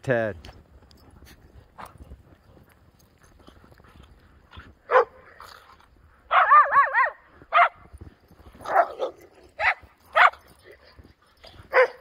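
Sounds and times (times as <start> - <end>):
dogs barking: 4.9 - 5.3, 6.3 - 7.8, 8.6 - 10.8, 11.7 - 12.0.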